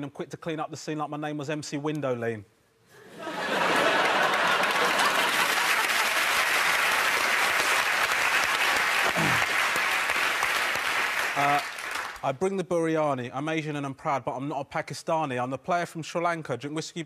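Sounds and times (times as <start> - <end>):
studio audience applauding: 3.3 - 12.2.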